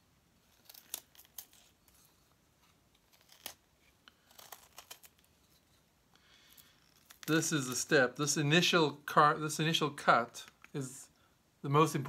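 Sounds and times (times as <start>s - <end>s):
knife cutting and scraping wood: 0.4s - 5.9s.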